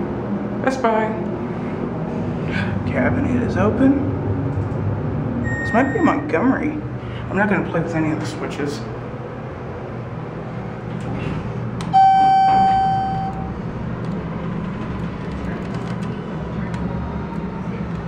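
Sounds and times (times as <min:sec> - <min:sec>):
steady low hum: 0:00.0 - 0:18.0
loud electronic beep: 0:05.4 - 0:06.3, 0:12.0 - 0:13.6
elevator click: 0:11.8 - 0:16.2.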